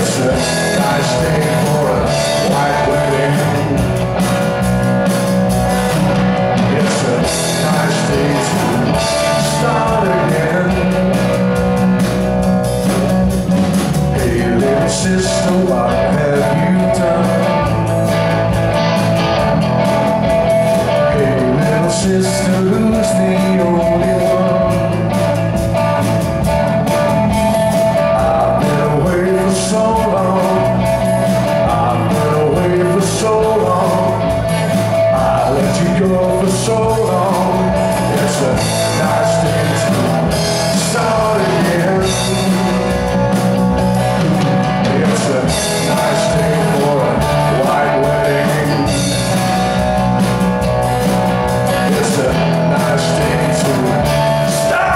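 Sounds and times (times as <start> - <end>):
man singing: 0.0 - 4.3, 6.4 - 11.6, 14.0 - 18.0, 20.8 - 25.4, 27.7 - 43.4, 44.5 - 49.6, 51.6 - 54.9
drum kit: 0.0 - 54.9
electric guitars: 0.0 - 54.9.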